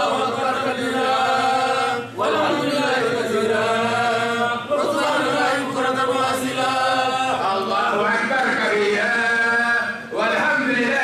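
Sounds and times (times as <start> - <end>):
man chanting: 7.2 - 11.0.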